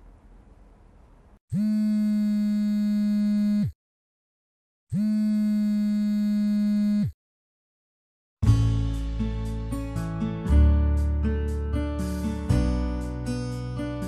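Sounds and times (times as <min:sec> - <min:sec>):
phone vibrating on wooden table: 0:01.5 - 0:03.8, 0:04.9 - 0:07.2.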